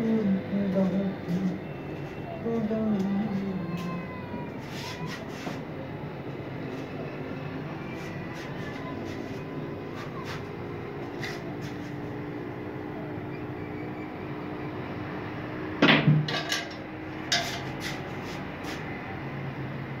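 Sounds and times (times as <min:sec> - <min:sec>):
steady low hum: 0:00.0 - 0:04.6.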